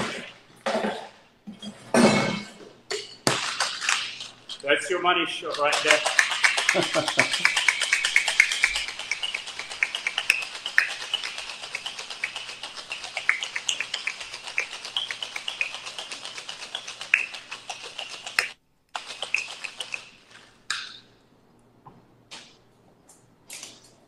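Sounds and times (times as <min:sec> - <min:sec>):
ice rattling in cocktail shaker: 0:05.5 - 0:20.6.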